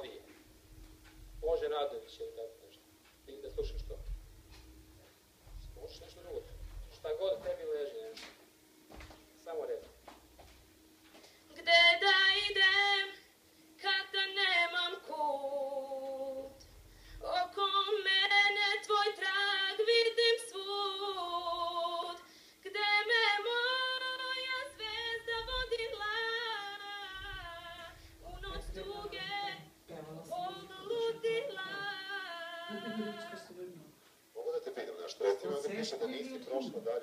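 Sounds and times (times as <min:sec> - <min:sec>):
woman singing solo: 0:28.6 - 0:33.4.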